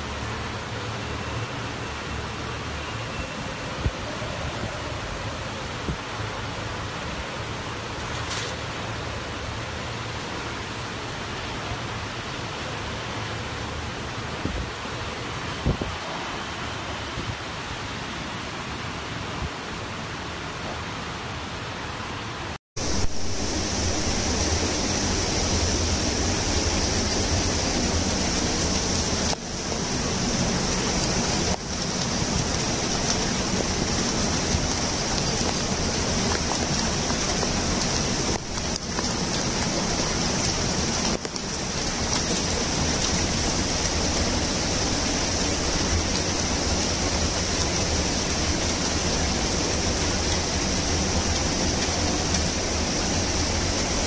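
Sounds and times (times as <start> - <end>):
heavy rain: 0.0 - 54.0
fast-flowing river rushing: 21.0 - 54.0.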